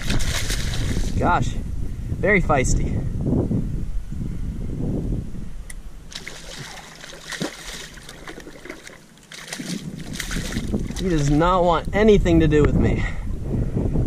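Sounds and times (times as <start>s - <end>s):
fish thrashing and splashing: 0.0s - 1.1s, 6.1s - 11.4s.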